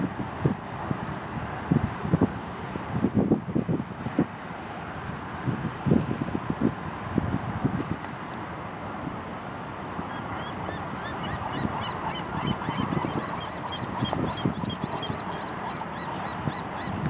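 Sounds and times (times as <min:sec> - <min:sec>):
gulls calling: 0:10.1 - 0:17.0.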